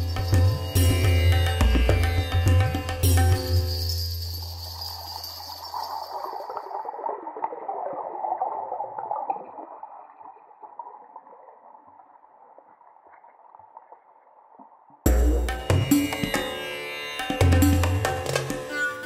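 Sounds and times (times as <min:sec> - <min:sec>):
underwater gurgling and bubbling: 0:06.2 - 0:14.1.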